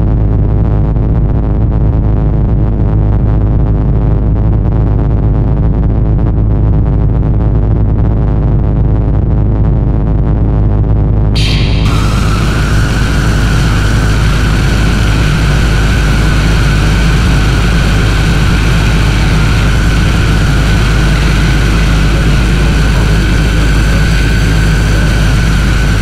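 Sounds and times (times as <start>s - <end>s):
dark ambient drone music: 11.4s - 26.0s
thin high steady tone: 11.4s - 26.0s.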